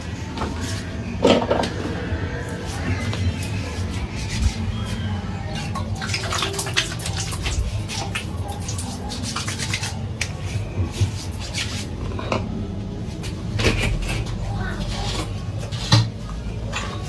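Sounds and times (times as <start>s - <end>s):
hands rubbing wet face: 5.6s - 12.0s.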